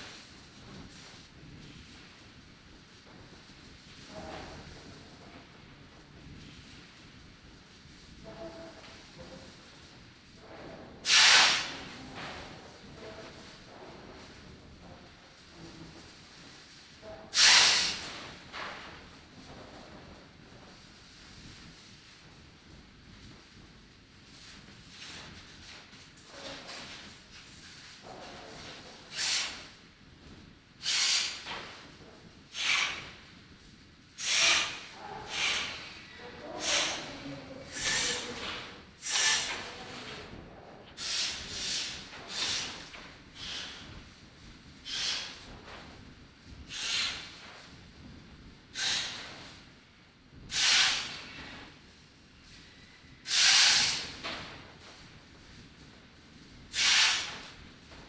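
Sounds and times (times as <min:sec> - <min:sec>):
short bursts of hiss: 0:11.0 - 0:12.0, 0:17.3 - 0:18.3, 0:29.1 - 0:29.8, 0:30.8 - 0:31.6, 0:32.5 - 0:33.2, 0:34.2 - 0:39.7, 0:41.0 - 0:43.9, 0:44.8 - 0:45.4, 0:46.7 - 0:47.3, 0:48.7 - 0:49.5, 0:50.5 - 0:51.4, 0:53.2 - 0:54.2, 0:56.7 - 0:57.5.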